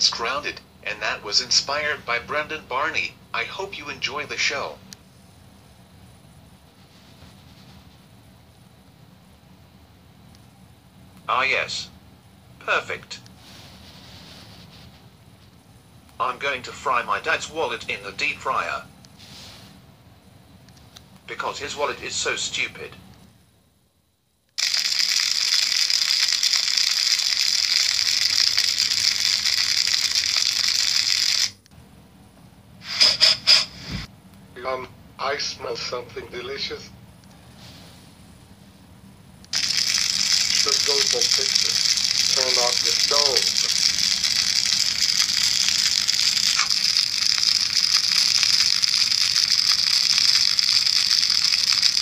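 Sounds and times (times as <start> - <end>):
deep frying sizzle: 24.6 - 31.6, 39.5 - 52.0.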